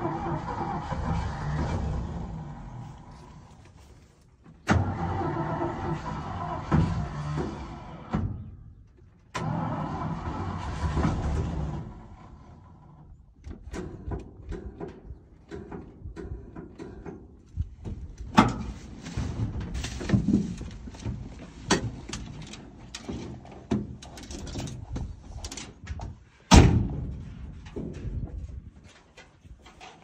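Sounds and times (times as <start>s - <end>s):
clicks knocks and rustles in vehicle: 13.4s - 30.0s.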